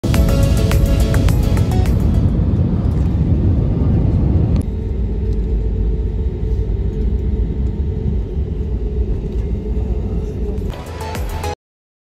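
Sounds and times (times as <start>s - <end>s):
airliner rolling rumble: 0.1s - 10.7s
rush of engine and air noise: 0.3s - 10.8s
faint hum: 2.2s - 10.7s.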